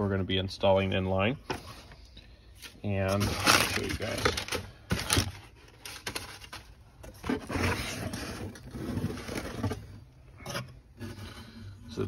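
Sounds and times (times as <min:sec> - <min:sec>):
paper and cardboard rustling: 0:02.6 - 0:12.0.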